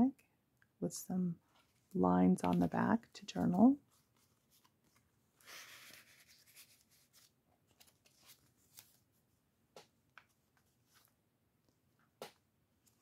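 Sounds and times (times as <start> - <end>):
paper rustling: 1.4 - 9.2.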